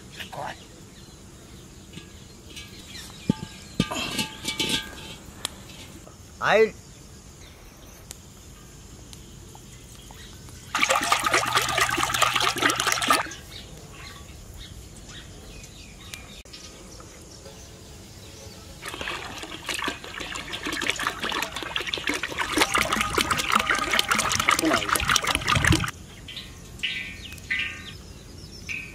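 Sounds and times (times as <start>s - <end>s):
oil pouring and splashing: 10.7s - 13.4s, 18.8s - 25.9s.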